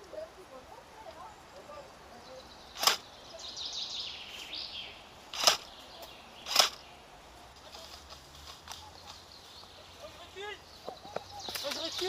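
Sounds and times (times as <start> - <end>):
bird chirping: 0.0 - 12.0
airsoft gun shots: 2.8 - 3.0, 5.3 - 5.7, 6.5 - 6.8.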